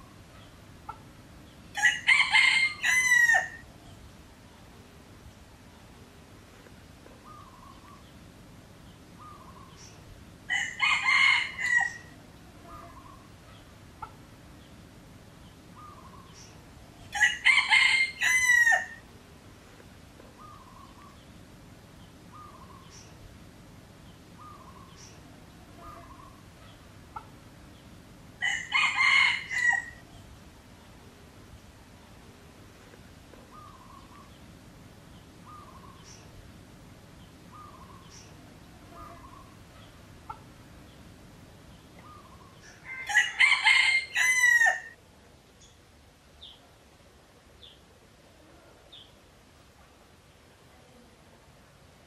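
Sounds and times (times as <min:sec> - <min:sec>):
rooster crowing: 0:01.7 - 0:03.6, 0:10.5 - 0:12.2, 0:17.1 - 0:19.0, 0:28.4 - 0:30.0, 0:42.6 - 0:45.0
faint short bird calls: 0:09.2 - 0:10.0, 0:24.4 - 0:27.4, 0:33.4 - 0:34.4, 0:37.5 - 0:40.5.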